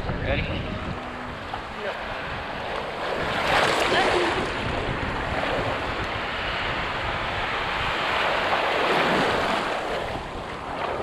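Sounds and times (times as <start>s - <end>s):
surf breaking: 0.4s - 11.0s.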